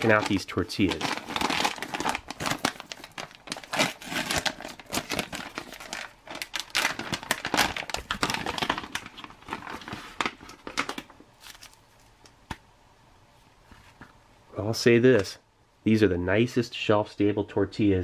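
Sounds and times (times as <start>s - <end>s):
foil pouch crinkling: 0.0s - 12.2s.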